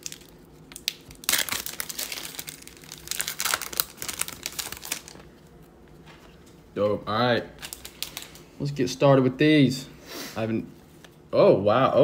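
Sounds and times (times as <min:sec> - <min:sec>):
foil wrapper crinkling: 0:00.0 - 0:05.4, 0:07.5 - 0:08.5.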